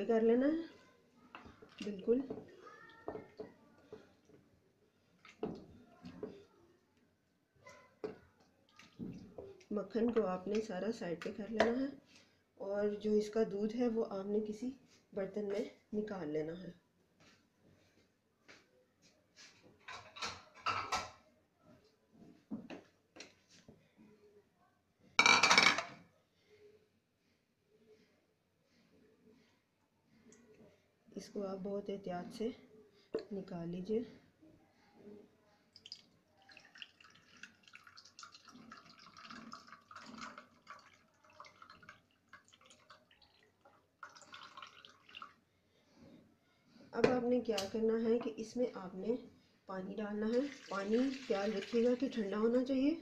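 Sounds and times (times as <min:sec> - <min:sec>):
liquid trickling and dripping: 0:35.7 - 0:45.4, 0:50.2 - 0:52.2.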